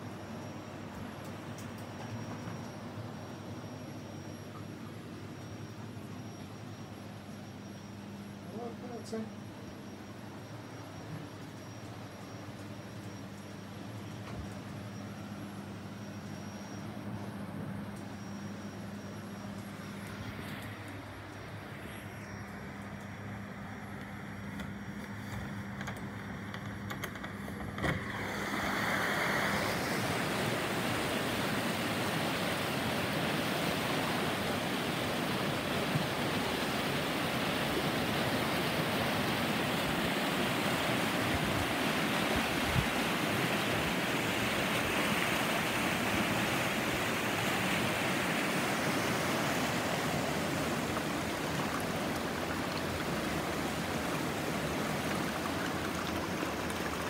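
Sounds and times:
river water rushing: 28.1s - 57.0s.

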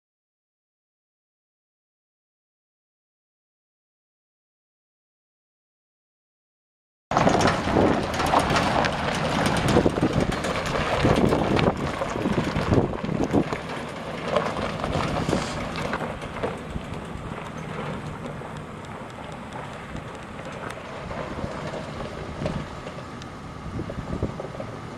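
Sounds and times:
pickup truck engine: 7.1s - 24.9s
tyres on gravel: 7.1s - 24.9s.

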